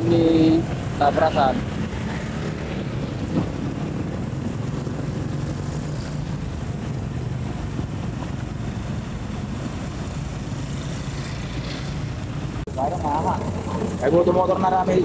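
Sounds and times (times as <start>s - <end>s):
motorcycles passing slowly: 0.0s - 15.0s.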